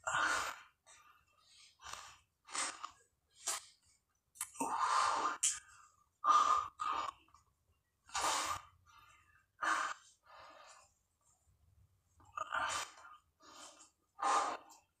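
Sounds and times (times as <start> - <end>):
man breathing heavily: 0.0 - 3.6, 8.1 - 11.0, 12.4 - 14.9.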